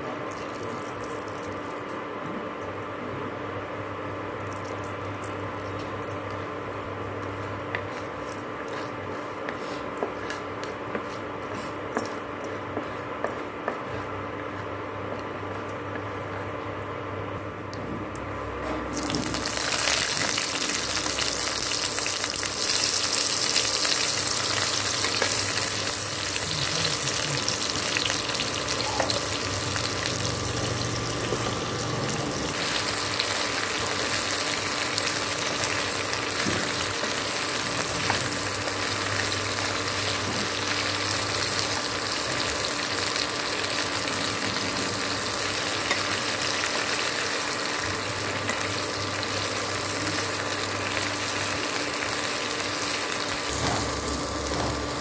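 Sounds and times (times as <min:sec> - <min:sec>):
vegetable slices sizzling in oil: 0:18.9 - 0:55.0.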